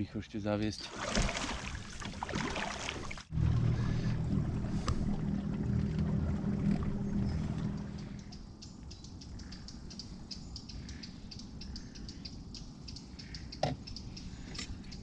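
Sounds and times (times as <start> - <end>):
boat motor humming: 1.0 - 8.6.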